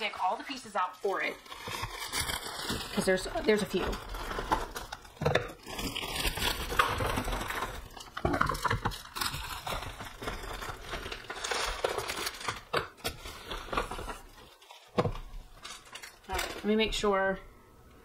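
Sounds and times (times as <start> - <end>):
packaging crinkling and rustling: 0.0 - 17.0.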